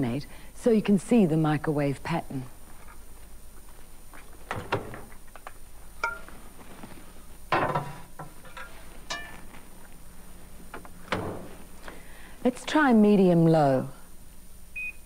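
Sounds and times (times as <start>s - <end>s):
glass bowl clinking: 6.0s - 6.4s, 7.6s - 9.6s
microwave door thunking shut: 11.1s - 11.6s.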